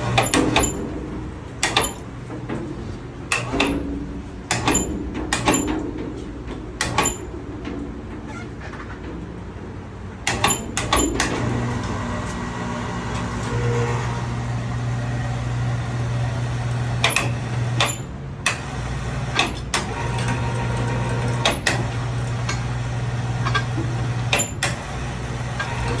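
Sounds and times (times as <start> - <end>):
electric hoist motor hum: 10.2 - 26.0.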